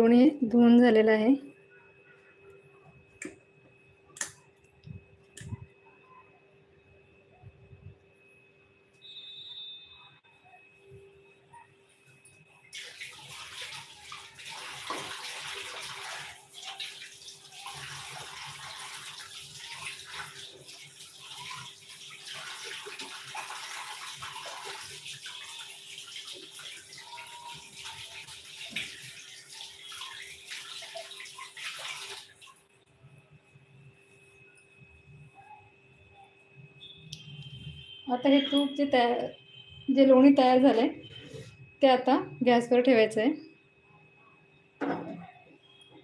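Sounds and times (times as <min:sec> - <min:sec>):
tap water running into sink: 0:12.7 - 0:32.6.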